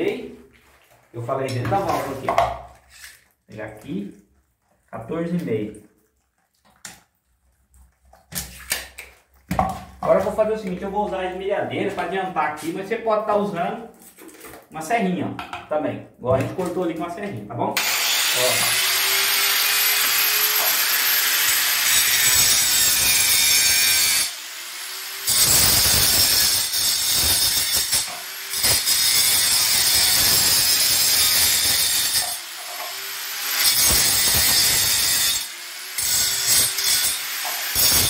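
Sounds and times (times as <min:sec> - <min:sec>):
angle grinder cutting plastic pipe: 0:17.8 - 0:38.0.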